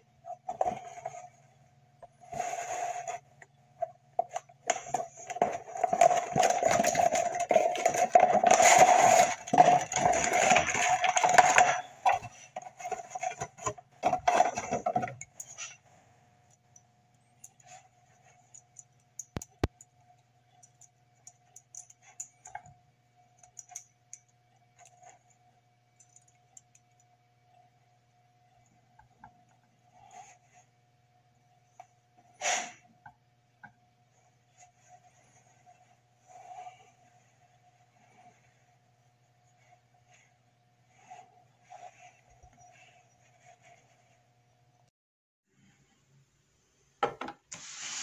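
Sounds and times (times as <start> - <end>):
cardboard packaging rustling: 4.7 - 15.0
small clicks and taps: 18.5 - 22.8.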